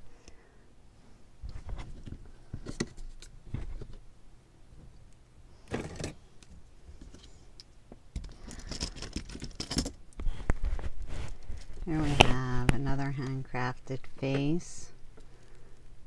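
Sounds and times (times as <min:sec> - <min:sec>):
rustling: 0:08.2 - 0:12.9.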